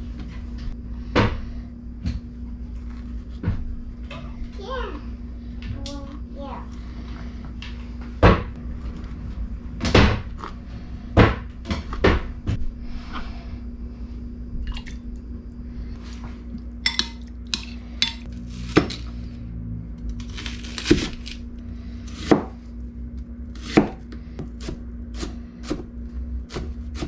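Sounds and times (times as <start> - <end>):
steady low hum: 0.0 - 27.0
metal spoon clinking glass bowl: 16.8 - 18.2.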